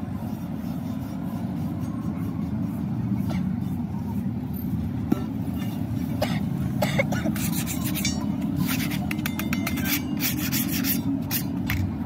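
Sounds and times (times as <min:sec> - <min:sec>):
hand scraper scraping rusty steel: 0:07.0 - 0:11.9.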